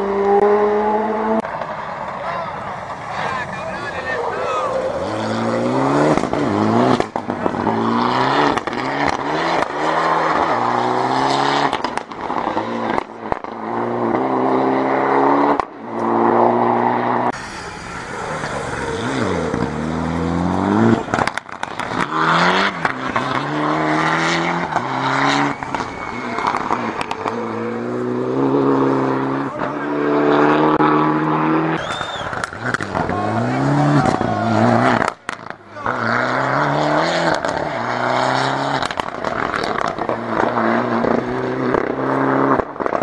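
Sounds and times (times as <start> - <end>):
rally car engines revving: 0.0 - 43.0.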